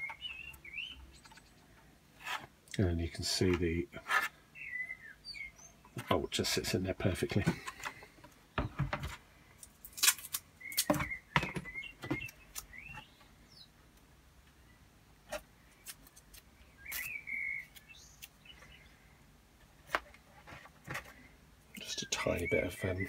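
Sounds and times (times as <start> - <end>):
bird chirps: 0.0 - 1.6, 4.6 - 6.0, 10.6 - 13.7, 16.6 - 19.0
parts knocking on a workbench: 8.6 - 9.1.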